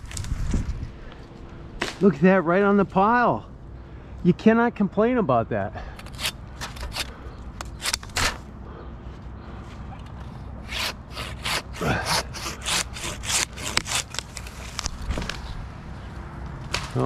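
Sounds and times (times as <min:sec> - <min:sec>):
handsaw cutting wood: 0:06.0 - 0:07.1, 0:10.6 - 0:14.4.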